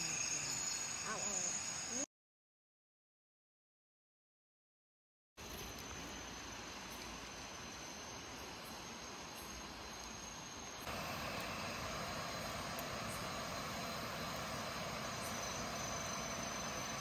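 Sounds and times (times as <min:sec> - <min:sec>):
crickets and insects calling: 0:00.0 - 0:02.1, 0:05.4 - 0:17.0
even hiss: 0:00.0 - 0:02.1, 0:05.4 - 0:17.0.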